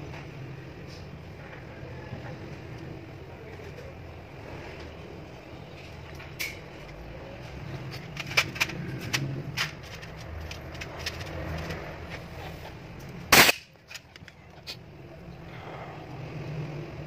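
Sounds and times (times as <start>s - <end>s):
clicks of tools being handled: 7.8s - 12.2s.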